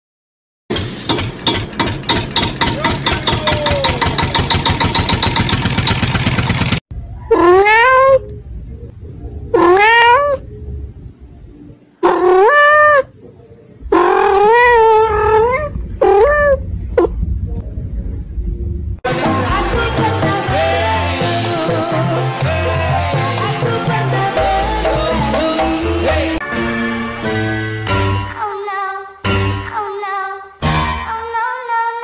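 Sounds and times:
cat meowing: 7.2 - 8.3, 9.5 - 10.4, 12.0 - 13.1, 13.9 - 17.1.

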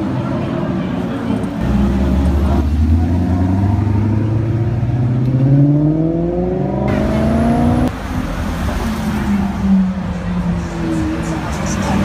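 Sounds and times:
sports car engine accelerating: 1.6 - 9.1.

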